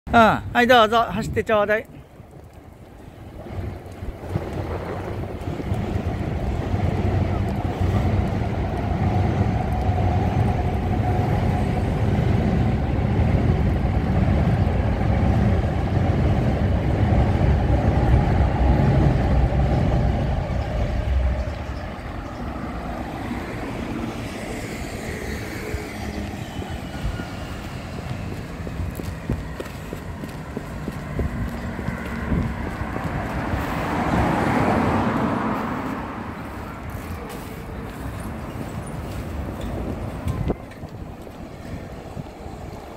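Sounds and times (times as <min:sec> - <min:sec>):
loud rumble of city traffic: 0:00.1 - 0:42.9.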